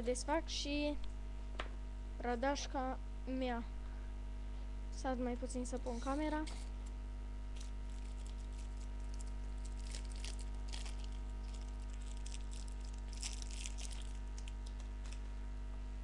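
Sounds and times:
steady electrical hum: 0:00.0 - 0:16.0
plastic packet crinkling: 0:07.6 - 0:15.3.

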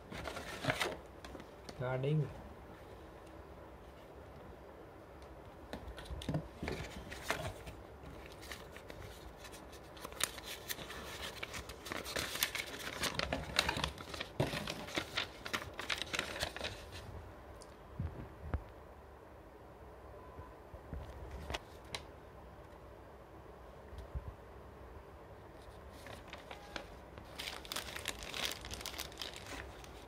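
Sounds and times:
packaging crinkling and tearing: 0:00.1 - 0:01.0, 0:06.7 - 0:17.0, 0:26.0 - 0:30.0.

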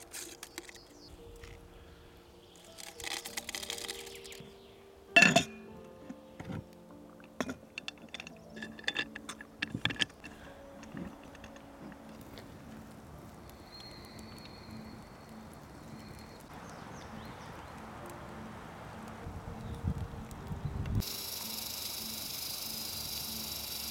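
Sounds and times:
faint background noise: 0:00.0 - 0:22.1
metal lid clanging on pot: 0:05.2 - 0:05.6.

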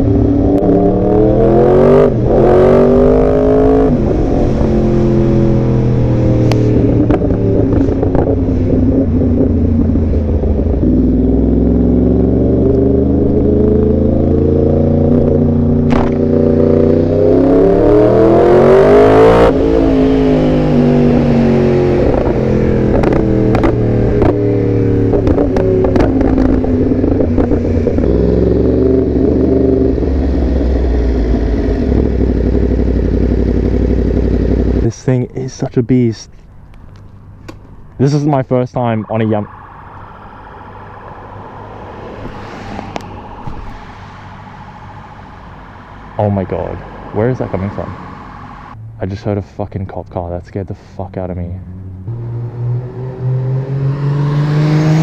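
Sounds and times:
motorcycle engine revving: 0:00.0 - 0:35.0, 0:51.5 - 0:55.0.

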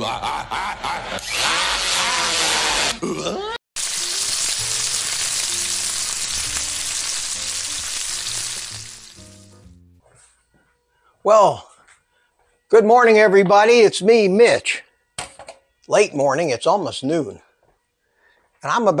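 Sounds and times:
bacon sizzling in a frying pan: 0:03.8 - 0:09.7
low stepped music: 0:04.6 - 0:18.8.

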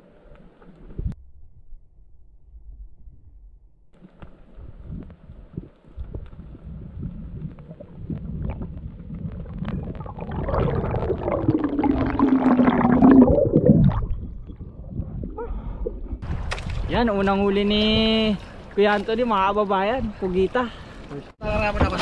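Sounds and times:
underwater rumbling and gurgling: 0:04.1 - 0:16.9.

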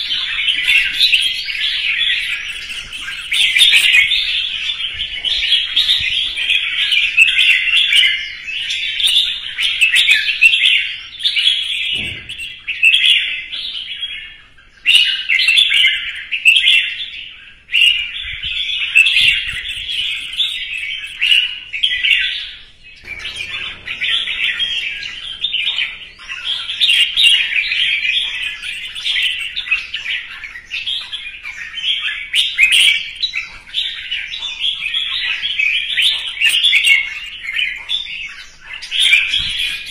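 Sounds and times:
bird singing chattering whistles: 0:00.0 - 0:39.9.

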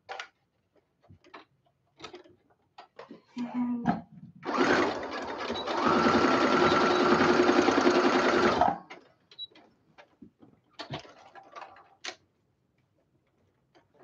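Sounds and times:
electric sewing machine stitching: 0:04.4 - 0:08.9.

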